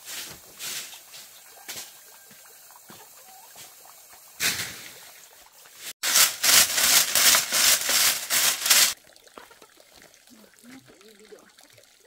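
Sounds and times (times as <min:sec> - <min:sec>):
rough rubbing strokes: 0:06.0 - 0:09.0.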